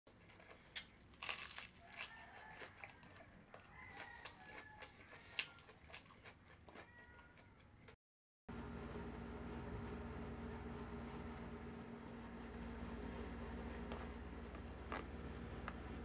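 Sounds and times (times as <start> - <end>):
crunching fried chicken being chewed: 0.1 - 8.0, 13.9 - 15.8.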